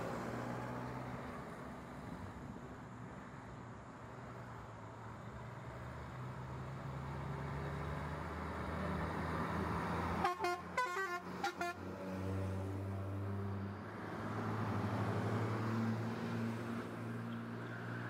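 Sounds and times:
vehicle horn toots: 10.2s - 11.8s.

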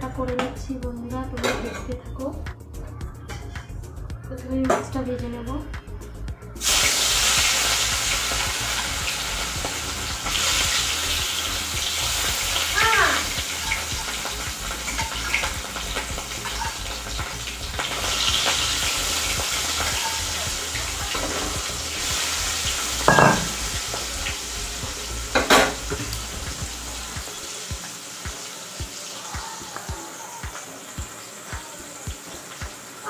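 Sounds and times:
fish sizzling in hot oil: 6.6s - 33.0s
metal spatula knocking on pan: 23.1s - 23.6s.

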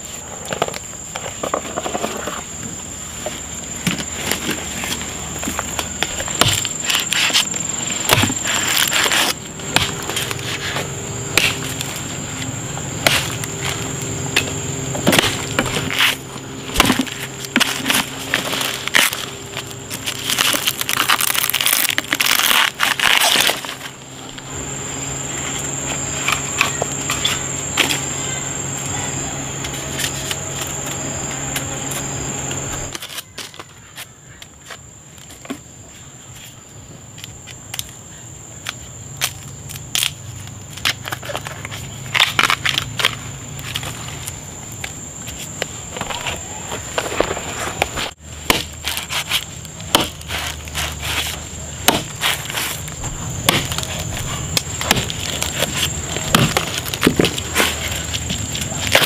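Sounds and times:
low hum: 0.0s - 33.1s
high insect drone: 0.0s - 59.0s
knife chopping bamboo: 6.0s - 10.4s, 14.4s - 19.2s, 48.4s - 52.8s, 53.4s - 59.0s.

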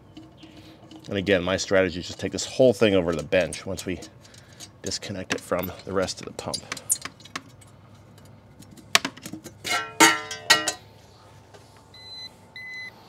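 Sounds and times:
metal clinks and rattles: 0.0s - 10.8s
ringing metal clanks: 9.7s - 10.8s.

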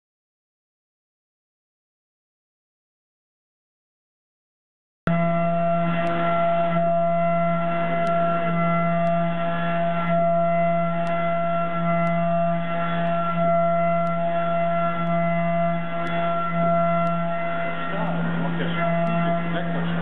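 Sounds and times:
milling machine cutting steel whine: 5.1s - 20.0s.

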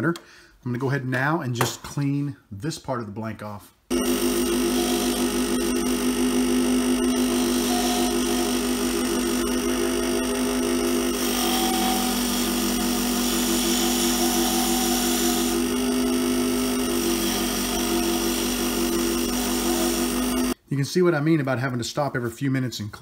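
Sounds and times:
lathe motor hum: 3.9s - 20.6s
tool cutting spinning rod: 3.9s - 20.6s.

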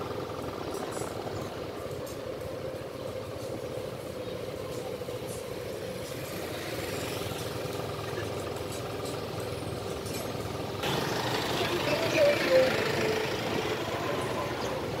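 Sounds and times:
street traffic noise: 0.0s - 15.0s.

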